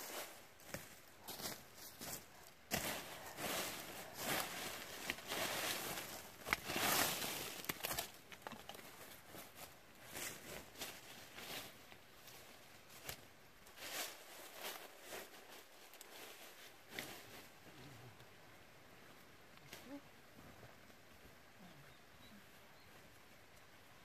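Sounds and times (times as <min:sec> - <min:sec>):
dry brush rustling and crackling: 0:00.0 - 0:18.4
twigs snapping: 0:07.5 - 0:08.8.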